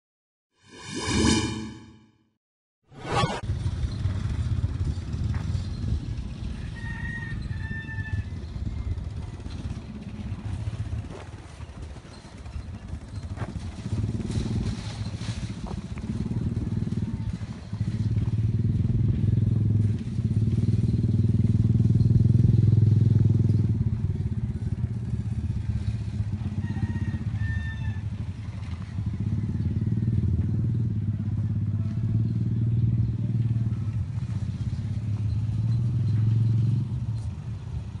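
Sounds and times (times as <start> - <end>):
vehicle engine rumble: 3.4 - 27.4, 28.0 - 38.0
rooster crowing: 6.6 - 8.3, 26.4 - 28.1.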